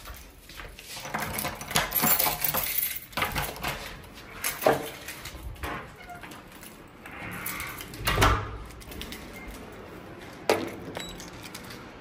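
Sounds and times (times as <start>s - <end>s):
metallic clinks and rattles: 0.0s - 5.6s, 10.6s - 12.0s
wardrobe door opening: 3.2s - 9.8s.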